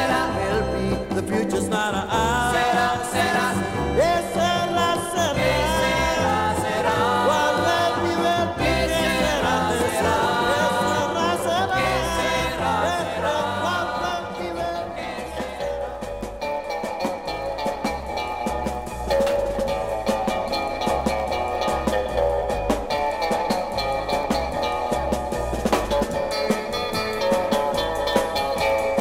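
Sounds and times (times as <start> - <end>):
group singing with band: 0.0 - 17.3.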